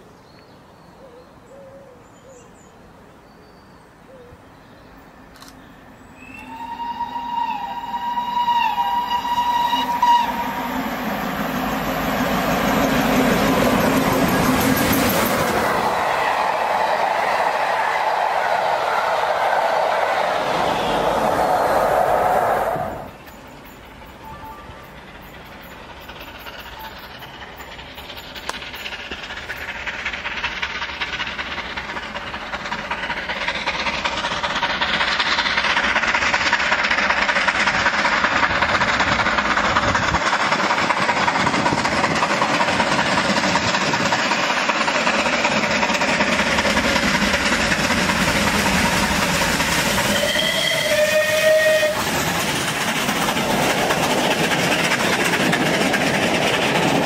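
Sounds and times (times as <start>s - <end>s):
steam locomotive and train passing: 0.0s - 57.0s
steam locomotive whistle: 6.2s - 11.1s, 15.7s - 23.2s, 24.2s - 25.0s, 49.8s - 52.3s.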